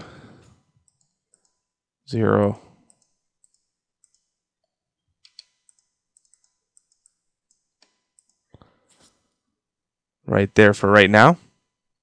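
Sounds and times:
faint mouse and keyboard clicks: 5.2s - 9.2s.

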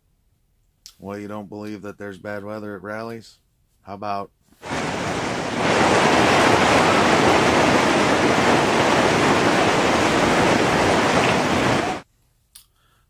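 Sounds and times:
hail and rain pelting pavement: 4.6s - 12.0s.

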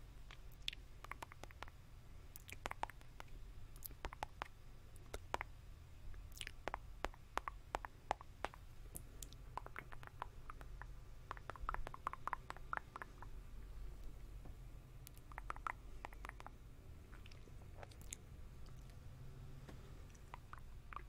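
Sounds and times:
wet mouth clicks and smacks: 0.3s - 1.8s, 2.4s - 5.5s, 6.3s - 13.4s, 15.0s - 19.0s, 20.1s - 21.0s.

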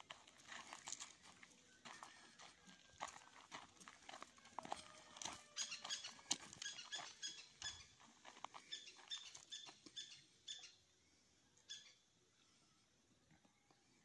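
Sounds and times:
footsteps crunching on stony ground: 0.0s - 10.2s.

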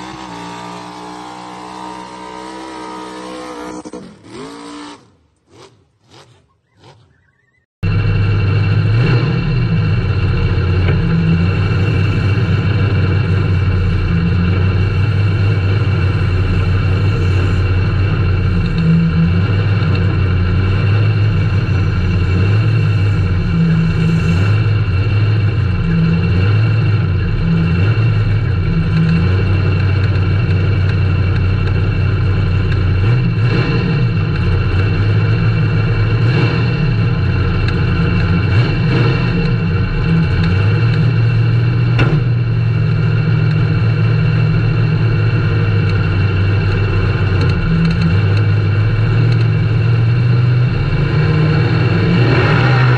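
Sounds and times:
truck engine idling unevenly: 7.8s - 33.3s.

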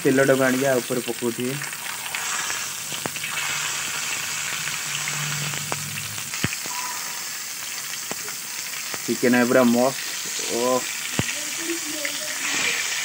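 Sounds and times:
hot oil sizzling: 0.0s - 13.0s.

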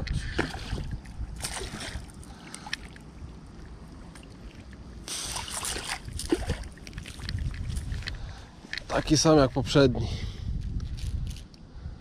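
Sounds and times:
wind buffeting microphone: 0.0s - 2.2s, 5.4s - 12.0s.

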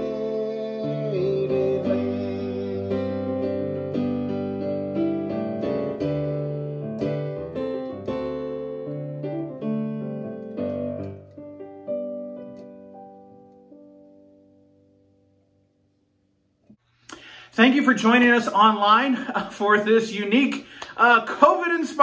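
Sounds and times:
digital piano playing hymn chords: 0.0s - 16.3s.

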